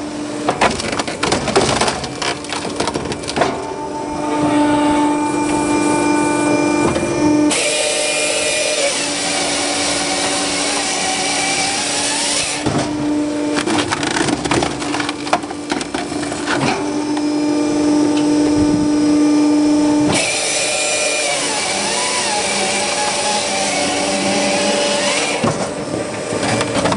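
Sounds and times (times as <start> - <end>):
steady hydraulic hum: 0.0 - 26.9
wood cracking and splintering: 0.5 - 3.7, 13.6 - 16.7
chainsaw cutting through log: 7.4 - 12.7, 20.1 - 25.5.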